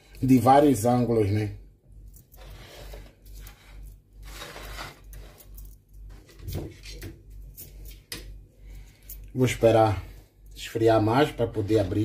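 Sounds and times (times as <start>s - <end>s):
soft kitchen strokes with clinks: 2.0s - 9.7s.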